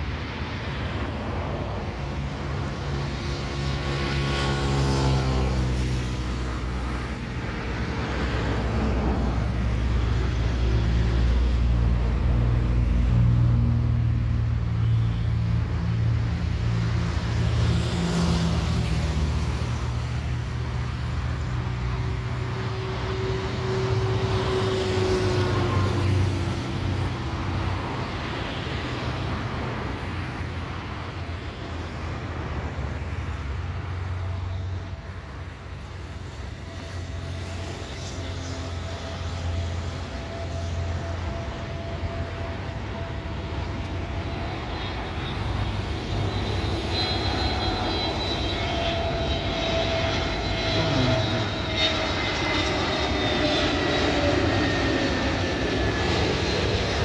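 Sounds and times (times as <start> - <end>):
jet engine hum: 0.0 - 57.0
high whining jet tones: 18.8 - 30.1, 34.0 - 57.0.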